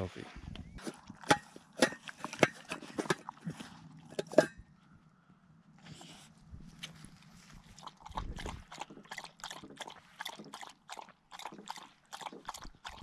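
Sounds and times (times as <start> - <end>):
dog lapping water: 0.8 - 4.4, 7.5 - 13.0.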